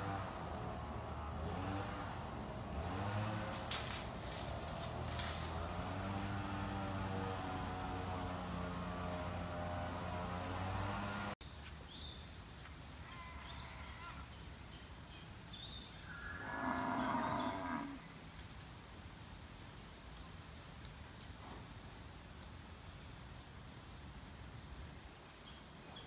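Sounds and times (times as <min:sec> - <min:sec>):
cow mooing: 0:16.1 - 0:18.0.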